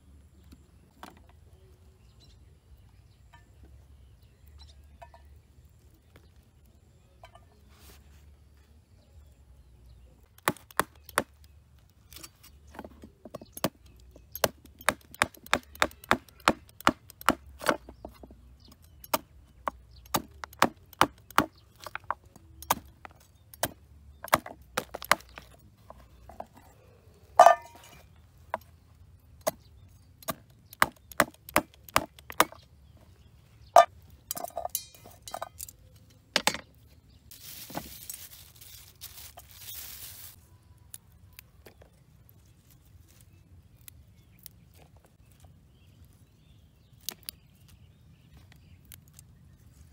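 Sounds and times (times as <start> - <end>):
cleaver chopping on wooden board: 14.4 - 18.0, 30.2 - 32.6.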